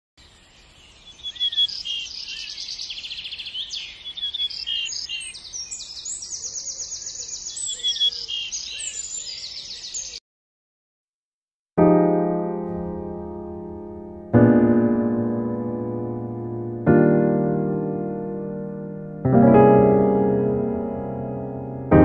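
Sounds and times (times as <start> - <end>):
songbirds chirping and singing: 0.2 - 10.2.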